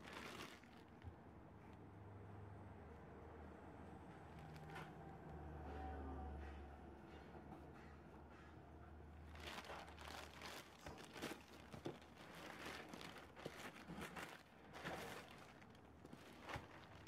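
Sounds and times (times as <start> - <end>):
plastic bag crinkling: 0.0 - 1.0, 9.3 - 17.0.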